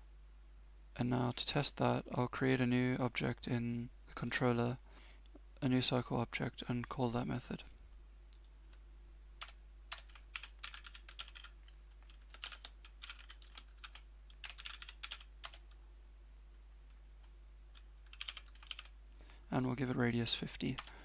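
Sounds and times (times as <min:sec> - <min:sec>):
faint steady hum: 0:00.0 - 0:21.0
computer keyboard typing: 0:09.4 - 0:15.8, 0:17.7 - 0:19.0, 0:20.7 - 0:20.9.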